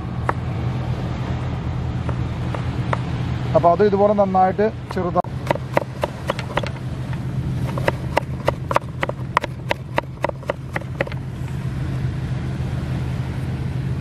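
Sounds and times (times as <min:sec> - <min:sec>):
steady low hum: 0:00.0 - 0:14.0
knife chopping on cutting board: 0:04.9 - 0:06.8, 0:07.6 - 0:11.2.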